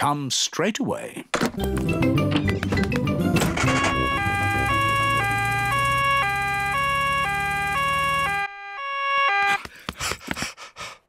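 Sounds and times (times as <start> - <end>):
two-tone cartoon siren: 3.5 - 9.6.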